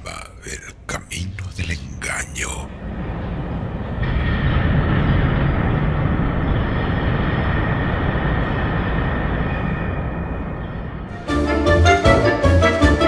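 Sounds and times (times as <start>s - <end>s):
dense steady rumble: 0.0s - 13.0s.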